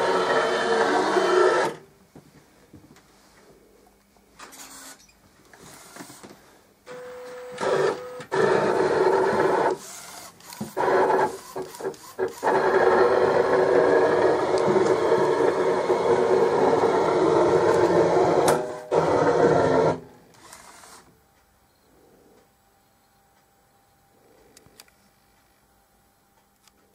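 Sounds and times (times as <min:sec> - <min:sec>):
printer motors running: 0:00.0 - 0:01.8, 0:06.9 - 0:21.1.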